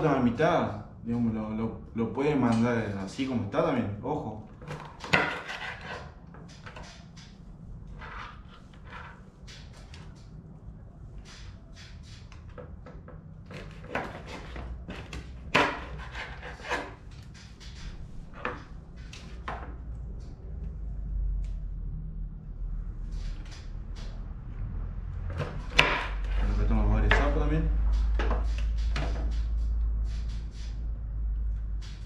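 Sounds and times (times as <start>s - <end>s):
knife cutting fish on board: 13.5s - 17.0s.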